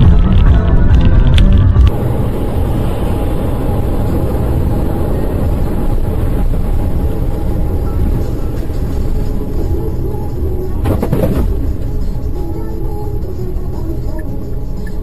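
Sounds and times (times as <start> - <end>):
background music: 0.0 - 15.0
car engine and tyre noise: 0.0 - 15.0.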